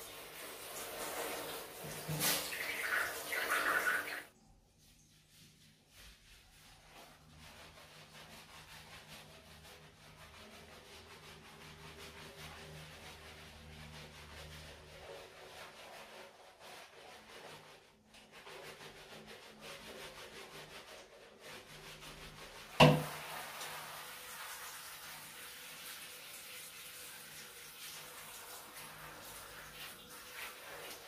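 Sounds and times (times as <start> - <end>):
brush scrubbing wet fur: 0.0 - 31.0
sharp knock: 22.8 - 23.1.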